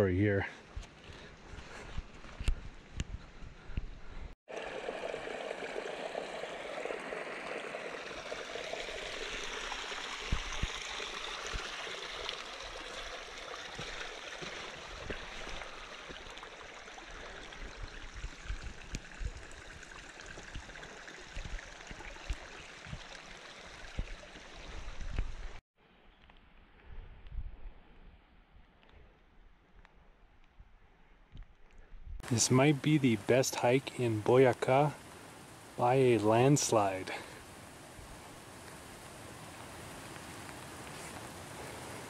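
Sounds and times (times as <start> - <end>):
creek trickling over rocks: 4.5 - 25.6, 32.2 - 42.0.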